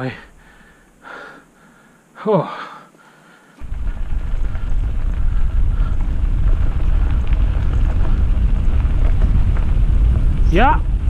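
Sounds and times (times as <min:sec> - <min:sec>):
faint rattles: 0:03.6 - 0:11.0
wind buffeting microphone: 0:03.6 - 0:11.0.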